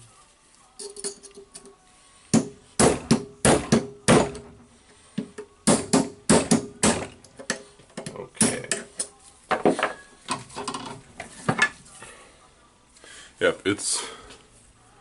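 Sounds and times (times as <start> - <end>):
light metal clinks: 0.8 - 1.8
hammer striking metal: 2.3 - 4.6.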